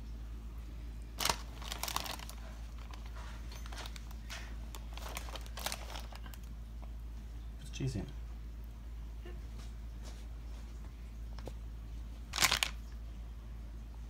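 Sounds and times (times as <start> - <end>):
steady low hum: 0.0 - 14.0
ham slices rustling and crinkling: 1.2 - 6.6, 12.3 - 12.9.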